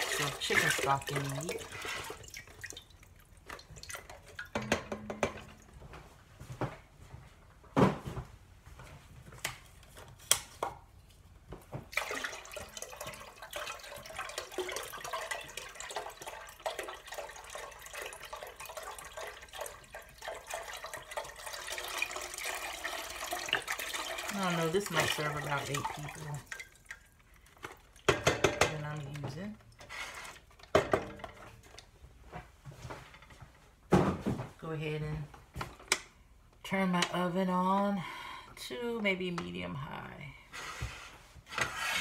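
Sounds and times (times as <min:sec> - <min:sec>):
stock pouring into metal pot: 0:12.0 - 0:26.5.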